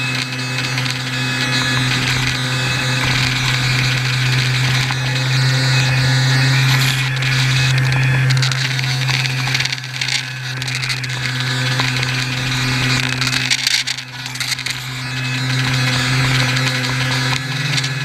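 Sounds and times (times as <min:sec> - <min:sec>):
electric motor and propeller whining: 0:00.0 - 0:18.0.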